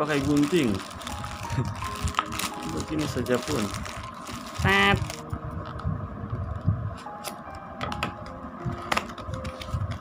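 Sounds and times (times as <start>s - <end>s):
low background rumble: 0.0s - 7.0s.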